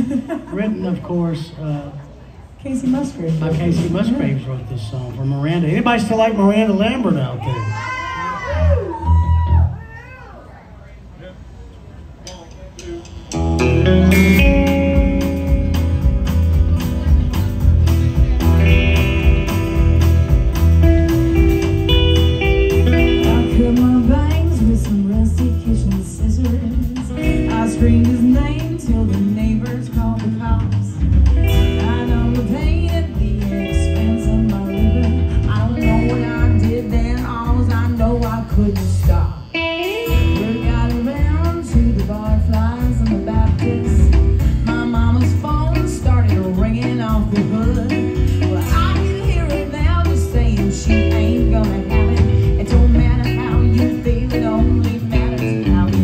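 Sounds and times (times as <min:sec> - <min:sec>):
live country band: 0:00.0 - 0:10.5, 0:12.5 - 0:56.0
woman singing: 0:22.8 - 0:56.0.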